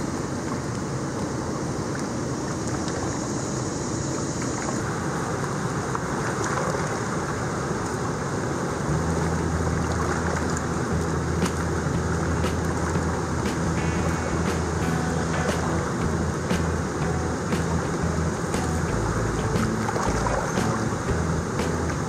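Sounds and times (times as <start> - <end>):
water rushing through spillway: 0.0 - 22.0
low steady hum: 7.9 - 22.0.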